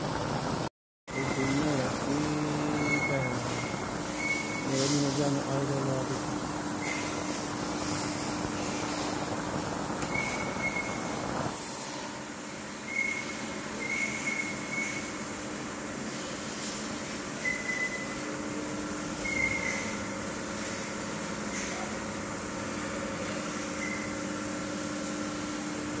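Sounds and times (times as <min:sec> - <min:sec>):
grinding machine whining: 0:01.1 - 0:07.2.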